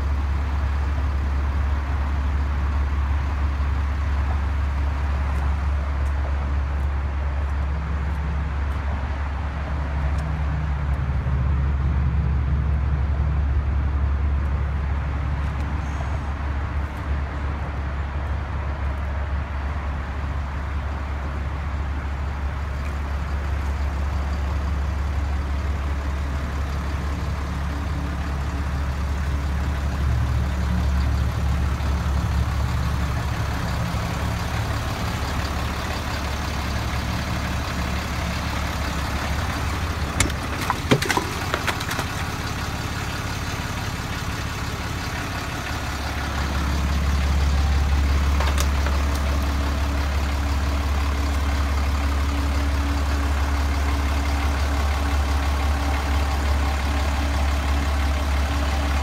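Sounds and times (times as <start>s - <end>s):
diesel engine idling: 0.0s - 59.0s
sharp clicks and knocks: 40.0s - 42.4s, 48.3s - 49.5s.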